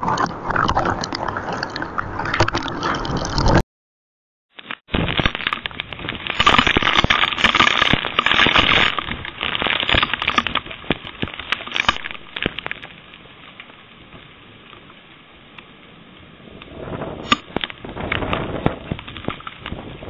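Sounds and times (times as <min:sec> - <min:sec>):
heavy rain: 0:05.0 - 0:20.0.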